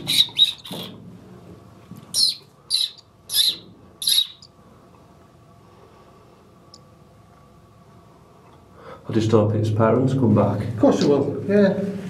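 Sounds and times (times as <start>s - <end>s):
nestling chirping: 0.0s - 1.0s, 2.1s - 4.6s.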